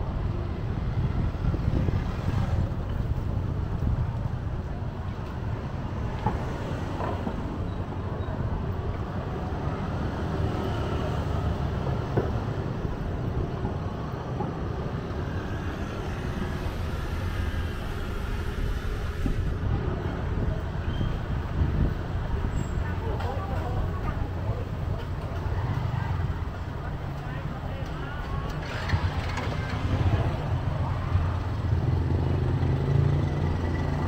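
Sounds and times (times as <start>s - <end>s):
motorbikes passing: 14.6s - 34.0s.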